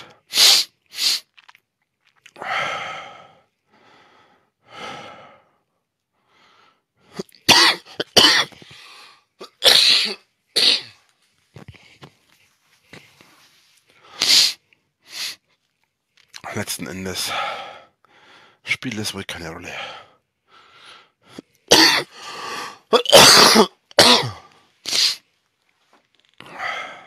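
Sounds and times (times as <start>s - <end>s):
breathy exhalations: 2.4s - 5.6s, 6.2s - 10.2s, 12.9s - 15.5s, 17.3s - 18.6s, 19.8s - 23.0s, 26.2s - 27.0s
man coughing: 7.4s - 8.6s, 9.4s - 11.0s, 21.7s - 22.2s, 22.9s - 24.4s.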